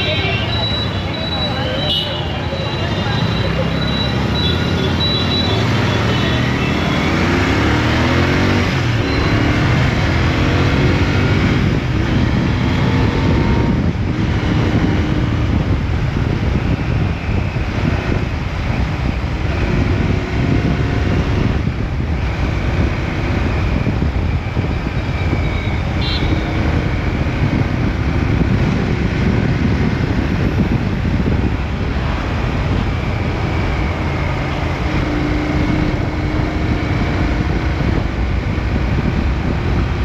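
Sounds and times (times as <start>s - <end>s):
motorcycle engine accelerating: 3.4s - 16.8s
wind rushing: 7.2s - 40.0s.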